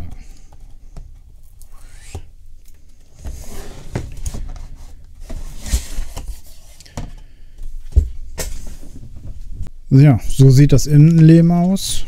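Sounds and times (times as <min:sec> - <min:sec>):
cardboard box lid scraping: 0:03.2 - 0:06.8.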